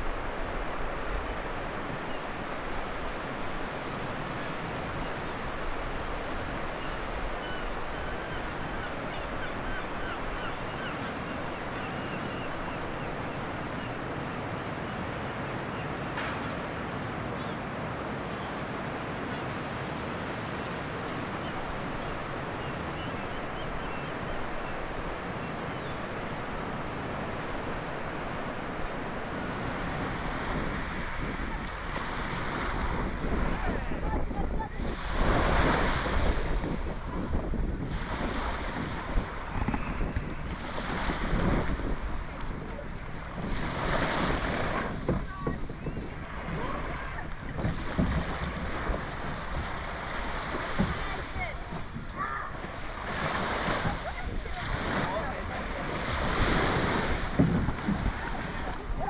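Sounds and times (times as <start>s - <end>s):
surf breaking on beach: 16.1s - 59.0s.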